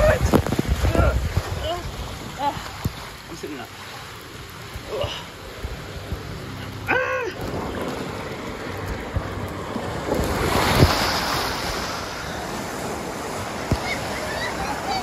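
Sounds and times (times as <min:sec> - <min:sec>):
churning water: 0:00.0 - 0:15.0
water rushing down a slide: 0:00.0 - 0:15.0
loud splash into pool: 0:10.1 - 0:12.9.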